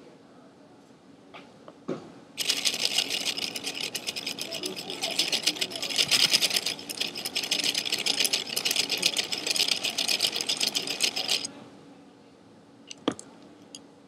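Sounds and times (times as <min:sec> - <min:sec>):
wooden gears rattling: 0:02.4 - 0:11.5.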